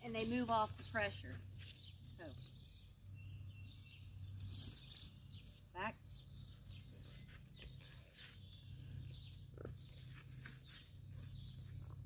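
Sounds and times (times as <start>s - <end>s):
soft hoof steps on dirt: 0.0s - 2.6s, 6.7s - 12.0s.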